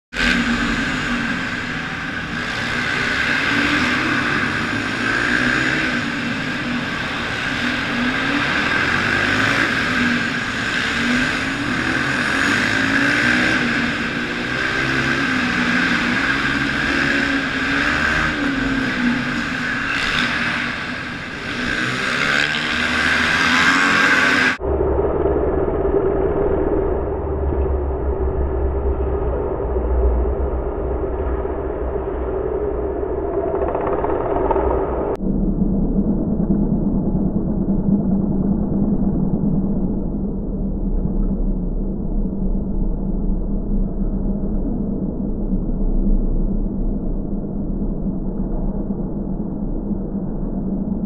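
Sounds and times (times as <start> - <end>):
motorcycle engine revving: 0.1 - 24.7.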